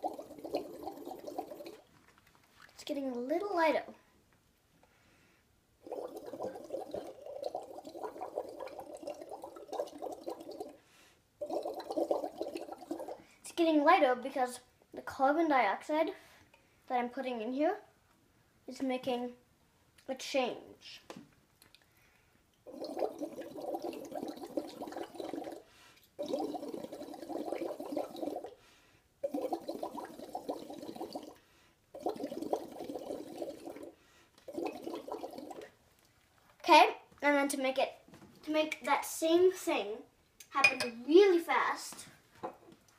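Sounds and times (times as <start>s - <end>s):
breath bubbling through liquid: 0.0s - 1.9s, 5.8s - 10.8s, 11.4s - 13.4s, 22.6s - 28.6s, 29.2s - 35.8s.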